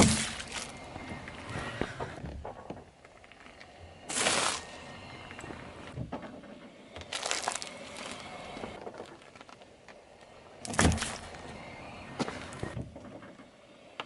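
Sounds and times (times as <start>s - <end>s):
liquid splattering: 0.0s - 0.7s
drink carton bursting under tyre: 0.0s - 0.8s, 4.1s - 4.9s, 7.0s - 9.4s
tyre crunching on asphalt: 0.0s - 0.9s, 4.1s - 4.8s, 7.0s - 9.7s, 10.7s - 11.4s.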